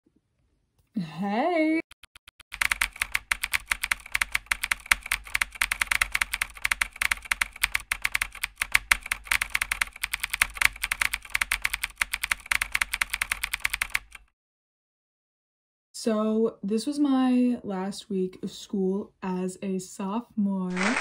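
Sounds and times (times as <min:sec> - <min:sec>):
keyboard typing: 0:01.8 - 0:14.3.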